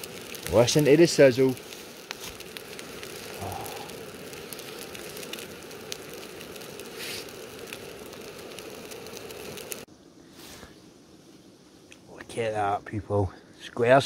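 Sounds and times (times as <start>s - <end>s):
sausage sizzling as it fries: 0.0s - 9.9s.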